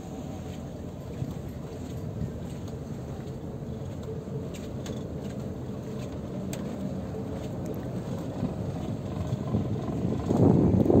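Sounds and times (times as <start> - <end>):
low rumble of ship engine: 0.0 - 11.0.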